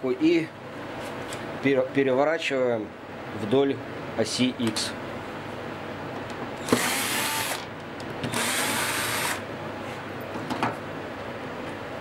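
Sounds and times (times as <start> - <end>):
cordless drill running: 6.6 - 7.7, 8.3 - 9.4.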